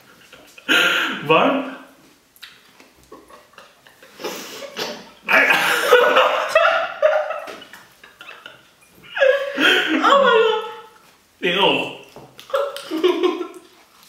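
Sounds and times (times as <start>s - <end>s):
people laughing: 3.1s - 10.9s, 12.5s - 13.6s.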